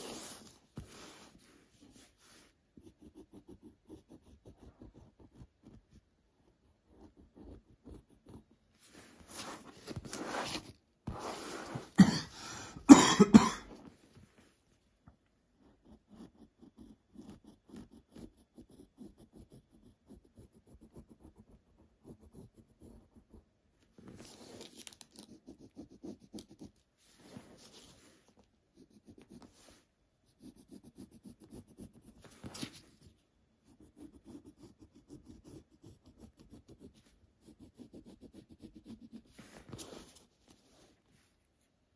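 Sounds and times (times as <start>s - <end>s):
pencil scratching on paper: 0.0s - 12.0s, 15.5s - 23.5s, 24.2s - 40.8s
person coughing: 11.9s - 13.8s.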